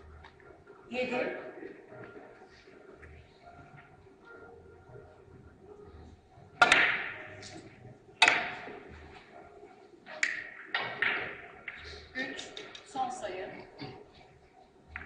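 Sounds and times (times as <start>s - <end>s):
billiard balls clacking: 6.6s - 9.3s, 10.2s - 12.9s.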